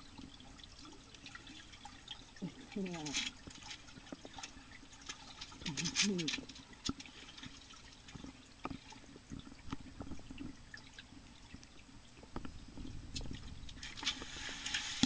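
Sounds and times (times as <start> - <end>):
small underwater clicks: 1.1 - 15.0
muffled underwater rumble: 5.5 - 6.7, 8.1 - 15.0.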